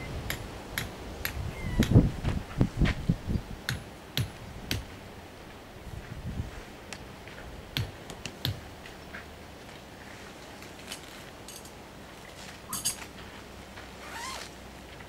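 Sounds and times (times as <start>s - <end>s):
tent pegs clicking and knocking: 7.8s - 8.6s, 10.8s - 11.8s, 12.7s - 13.1s.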